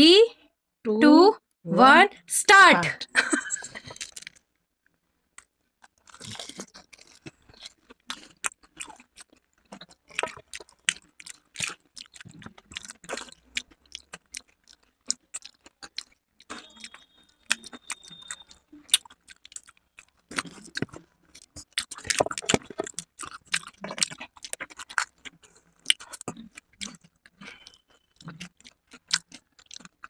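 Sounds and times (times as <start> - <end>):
wet chewing: 3.4 - 4.4, 5.4 - 30.0
crunching of crisp food: 3.5 - 4.4, 5.4 - 30.0.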